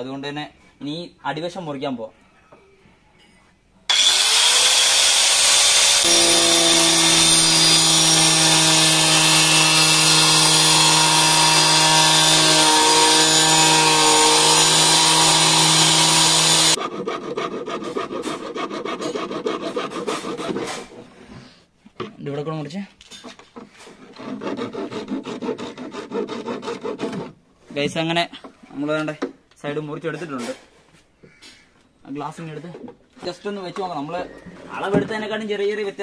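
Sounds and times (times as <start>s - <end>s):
power cutter grinding plastic: 3.9s - 16.8s.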